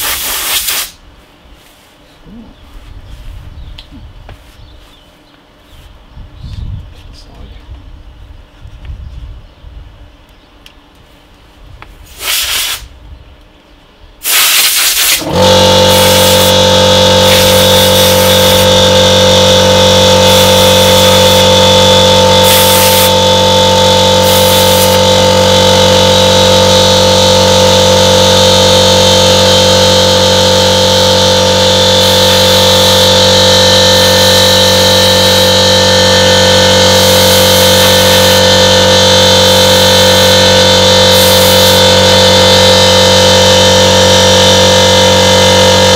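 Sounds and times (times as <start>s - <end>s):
compressed air hissing: 0.0s - 1.0s, 12.0s - 12.9s, 14.2s - 15.3s, 15.9s - 16.6s, 17.2s - 18.7s, 22.4s - 23.1s, 24.2s - 25.0s, 41.1s - 41.8s
air compressor humming: 0.0s - 4.6s, 14.2s - 45.9s.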